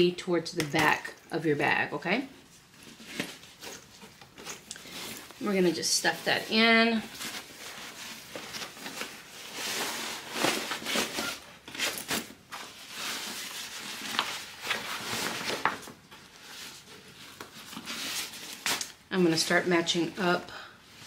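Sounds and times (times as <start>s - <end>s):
bag rustling and crinkling: 2.4s - 19.1s.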